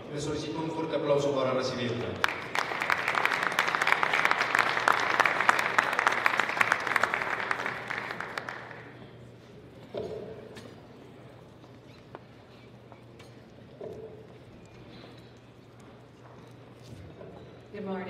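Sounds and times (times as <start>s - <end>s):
audience applauding: 1.8s - 9.1s.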